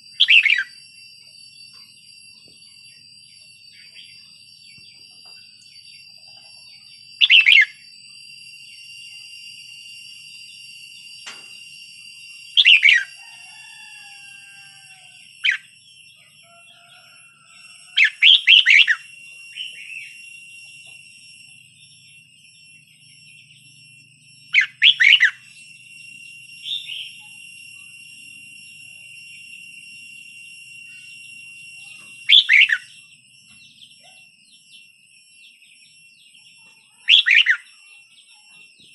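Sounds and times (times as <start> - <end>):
high-pitched whine: 0.0 - 38.9
bird singing chirpy phrases: 5.6 - 7.8, 33.6 - 38.6.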